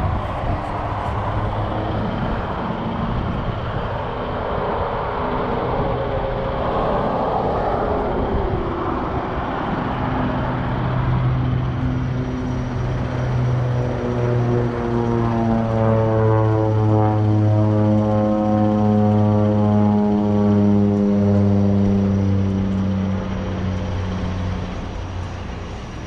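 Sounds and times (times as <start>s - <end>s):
three-wheeler engine running: 9.8s - 26.0s.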